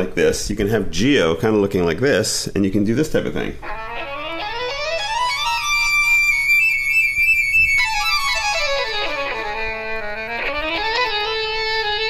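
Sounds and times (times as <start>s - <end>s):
synthesizer lead melody: 3.6s - 12.0s.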